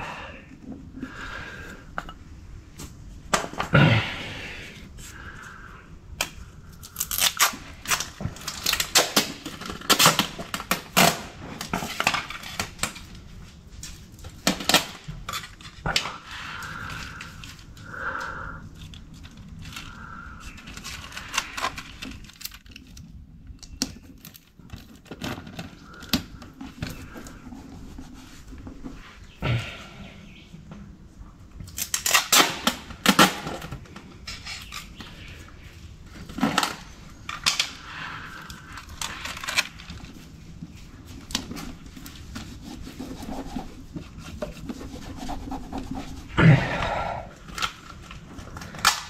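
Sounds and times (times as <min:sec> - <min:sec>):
adhesive tape ripping: 0:06.2 - 0:11.8, 0:31.7 - 0:33.6.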